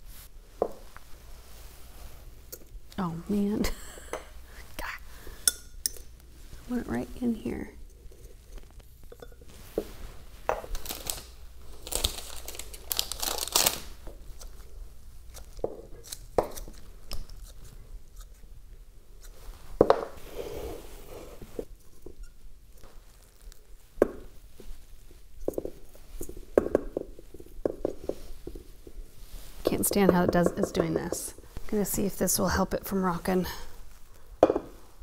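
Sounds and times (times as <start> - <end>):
hands rustling potting soil: 6.3 - 16.1, 19.3 - 34.2.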